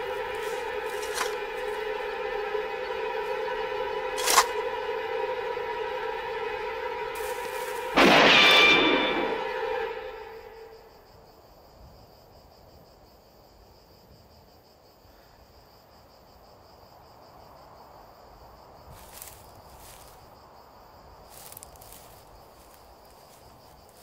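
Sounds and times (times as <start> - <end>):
crickets chirping: 0.0 - 24.0
rustling scuffs: 0.2 - 1.8.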